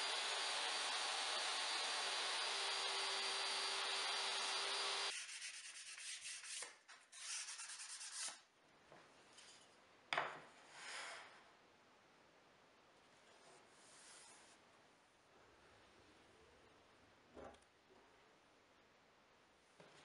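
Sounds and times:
table saw motor humming: 0.0 - 5.1
sandpaper rubbing wood: 5.0 - 8.4.

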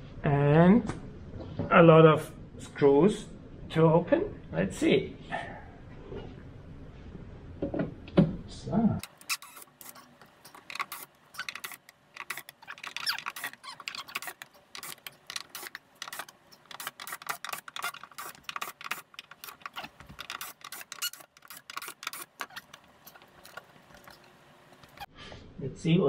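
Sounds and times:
drill-driver removing screws: 9.0 - 25.0.

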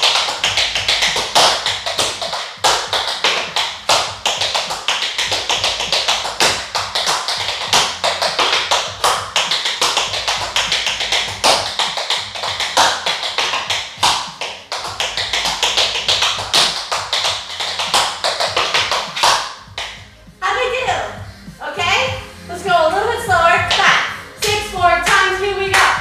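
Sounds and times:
tap shoes on hard floor: 0.0 - 20.0.

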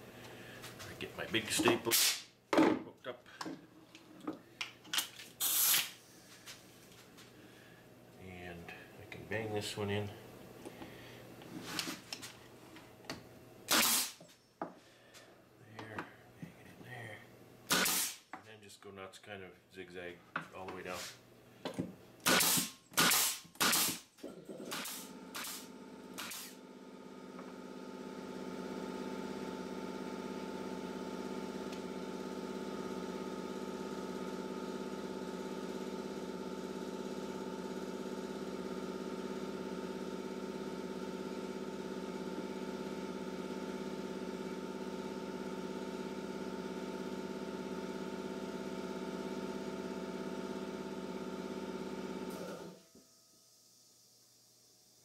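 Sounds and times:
air compressor humming: 0.0 - 2.4, 5.4 - 7.8, 13.6 - 14.3, 17.6 - 18.3, 20.9 - 54.2
pneumatic stapler firing: 1.9 - 2.3, 5.0 - 6.0, 13.7 - 14.2, 17.7 - 18.2, 22.2 - 24.1, 24.7 - 26.6.

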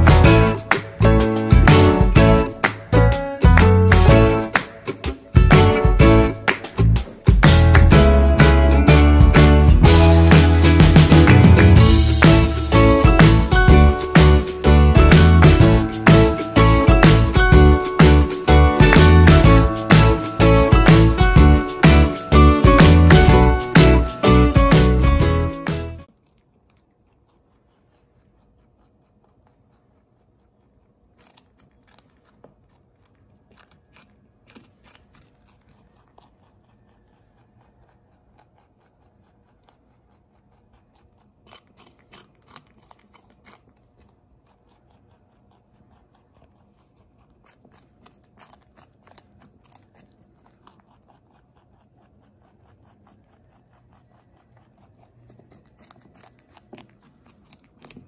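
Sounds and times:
rabbit crunching carrots: 0.0 - 25.2, 26.0 - 58.0
quiet chewing: 26.0 - 58.0.

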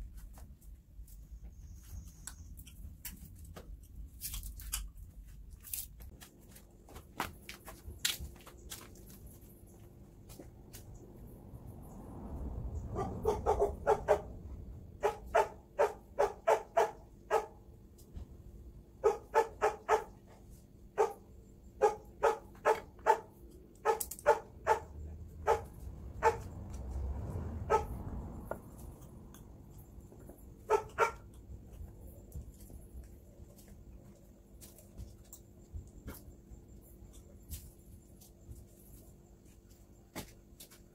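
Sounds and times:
dog barking: 12.9 - 14.3, 15.0 - 17.6, 19.0 - 20.2, 21.0 - 26.5, 27.6 - 28.0, 30.6 - 31.3.

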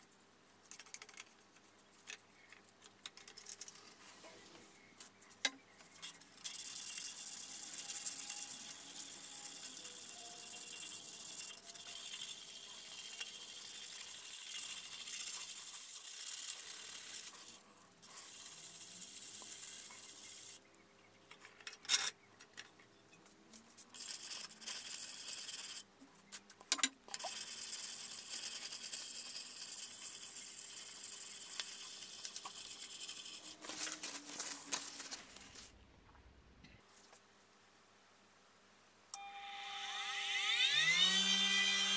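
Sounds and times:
sandpaper scraping steel blade: 23.9 - 25.9, 27.2 - 34.3.

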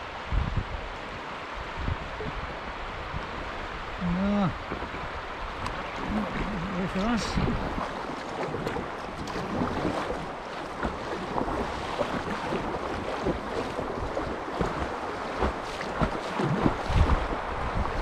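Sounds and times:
river water rushing and splashing: 0.0 - 18.0
wind on microphone: 0.0 - 18.0
short splashes: 4.5 - 18.0.

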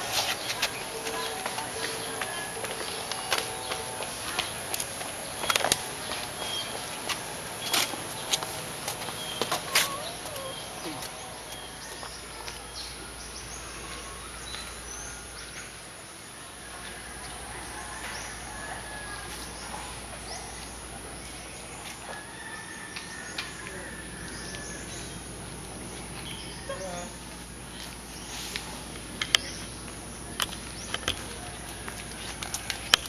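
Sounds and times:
bird chirps: 5.2 - 7.0.

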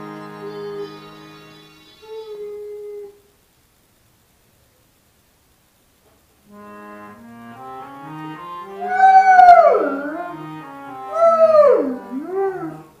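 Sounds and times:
slow melody of held notes: 0.0 - 3.2, 6.5 - 13.0
dog howling: 8.7 - 10.5, 11.1 - 12.9.

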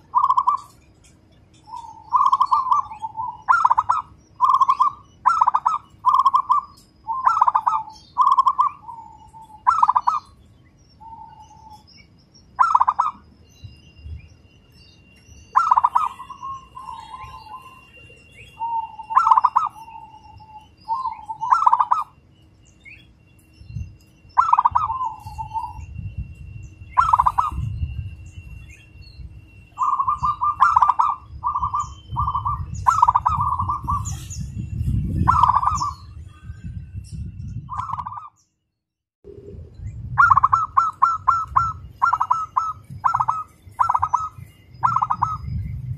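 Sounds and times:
dove cooing: 0.0 - 0.8, 1.7 - 10.4, 12.6 - 13.2, 15.6 - 22.2, 24.4 - 25.8, 27.0 - 27.7, 29.8 - 34.3, 35.2 - 36.1, 40.2 - 45.5
low rumble: 39.3 - 45.9.

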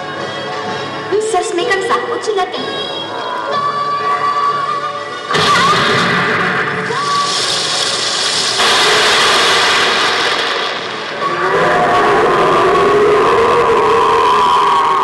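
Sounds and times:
rushing sound effect: 5.3 - 15.0.

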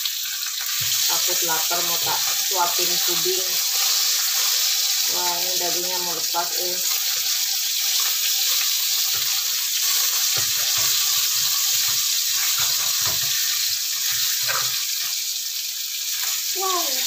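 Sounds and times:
fish frying in hot oil: 0.0 - 17.0
spatula moving food in wok: 6.9 - 15.2.

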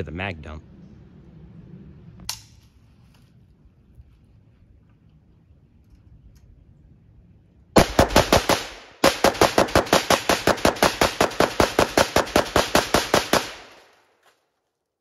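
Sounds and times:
rifle firing rapid shots: 7.8 - 13.9.

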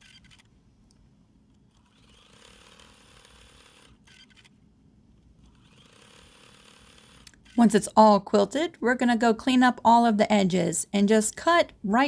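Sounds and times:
sewing machine stitching: 1.8 - 4.5, 5.4 - 7.6.

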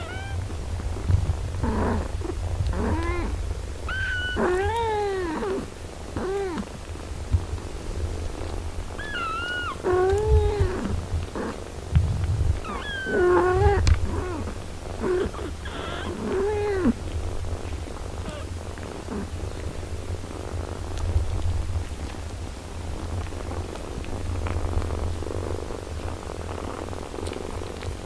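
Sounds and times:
kittens mewing: 0.0 - 0.6, 1.6 - 6.8, 8.9 - 11.6, 12.6 - 17.2, 18.2 - 19.3
cat purring: 0.0 - 28.0.

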